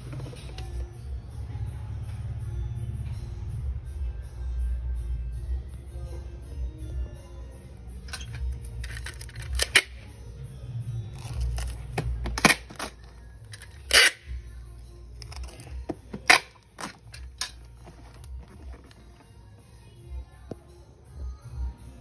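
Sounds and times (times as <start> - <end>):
background music: 0.0 - 22.0
packing tape pulled and cut: 8.1 - 10.0, 11.2 - 14.4, 15.2 - 19.3
cardboard box handled on tile: 15.5 - 19.3.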